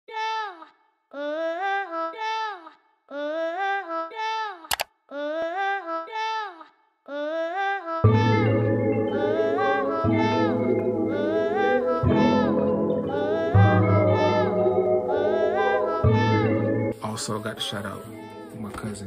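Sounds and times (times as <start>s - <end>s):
background music with heavy bass: 8.1s - 17.0s.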